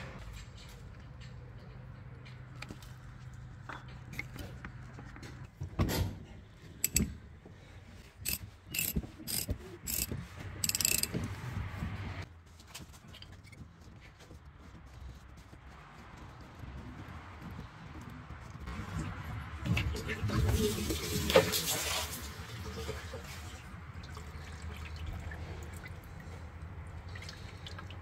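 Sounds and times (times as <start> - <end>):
ratchet wrench clicking: 6.8 - 7.1, 8.2 - 11.2.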